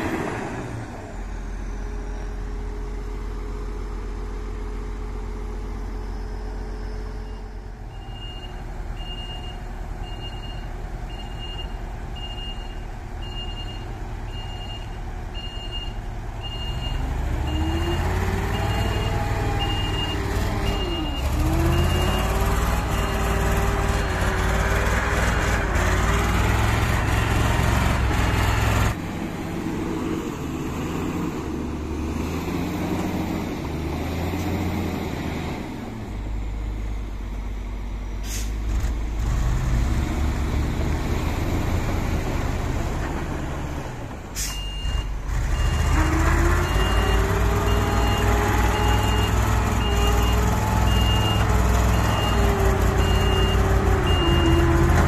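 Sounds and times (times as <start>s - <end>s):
diesel engines running: 0.0s - 55.0s
engine revving under load: 16.5s - 37.2s, 38.2s - 55.0s.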